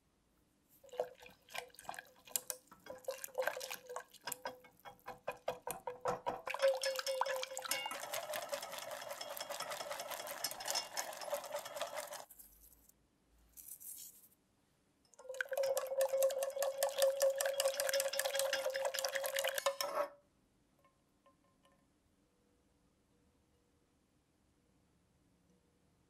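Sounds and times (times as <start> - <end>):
whisk scraping a metal pan: 1.3 - 12.3, 15.4 - 20.2.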